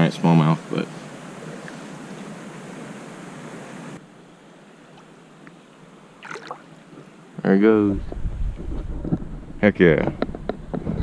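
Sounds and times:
flowing creek water: 0.0s - 7.4s.

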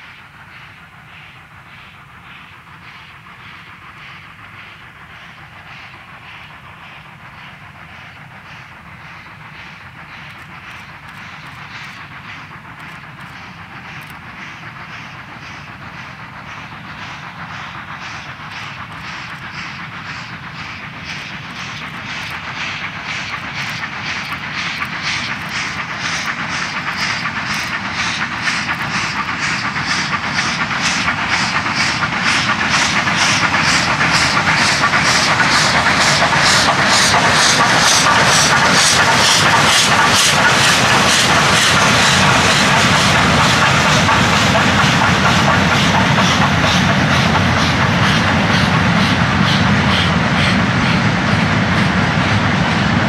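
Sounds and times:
steam locomotive exhaust chuffing: 0.0s - 53.0s.

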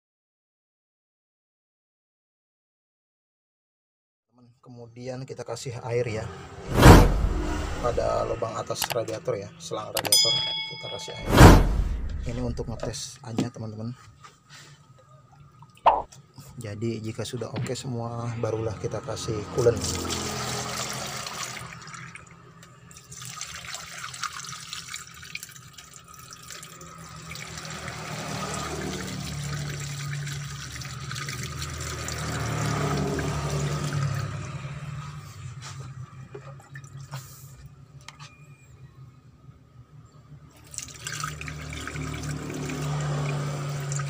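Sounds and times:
water pouring into funnel: 19.7s - 35.0s, 40.6s - 44.0s
water gurgling draining: 19.8s - 34.9s, 40.6s - 44.0s.

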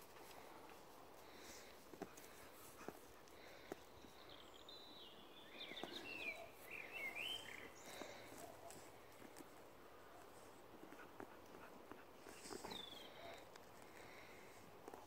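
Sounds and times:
dogs digging in soil: 0.0s - 4.4s, 5.5s - 15.0s
songbird singing: 3.2s - 10.4s, 12.1s - 14.4s.

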